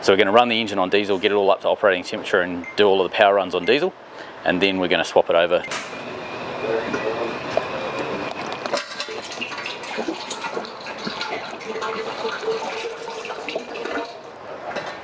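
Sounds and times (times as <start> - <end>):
liquid pouring and splashing: 8.7 - 14.8.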